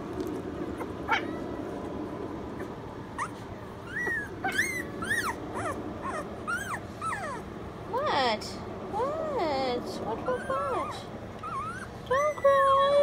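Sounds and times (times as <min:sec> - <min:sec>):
puppy whining: 0:00.6 - 0:07.7, 0:10.1 - 0:13.0
puppy high cries: 0:00.8 - 0:01.6, 0:03.2 - 0:07.5, 0:10.2 - 0:12.8.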